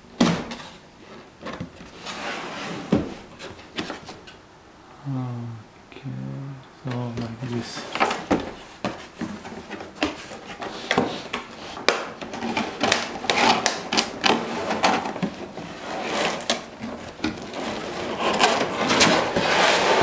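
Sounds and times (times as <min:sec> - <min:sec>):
cardboard box scraping: 0:01.6 - 0:04.2, 0:07.7 - 0:20.0
bubble wrap crinkling: 0:07.7 - 0:20.0.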